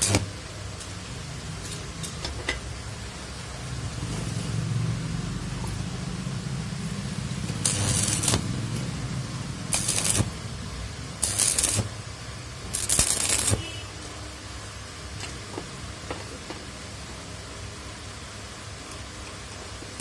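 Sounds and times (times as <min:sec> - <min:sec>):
crackling sputtering welding arc: 0:00.0 - 0:01.0, 0:06.6 - 0:14.2
low hum: 0:03.4 - 0:13.5.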